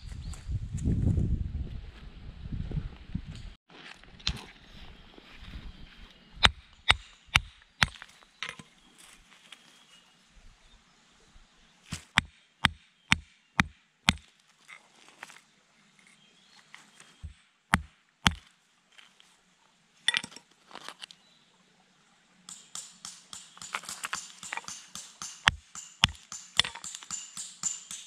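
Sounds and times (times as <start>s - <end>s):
hammer striking stone: 6.4s - 8.0s, 12.0s - 14.3s, 17.2s - 18.4s, 22.5s - 28.0s.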